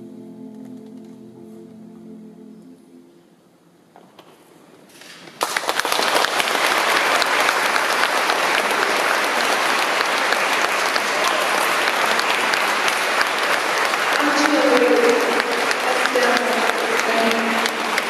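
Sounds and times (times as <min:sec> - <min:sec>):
audience applause: 0:05.1 - 0:18.0.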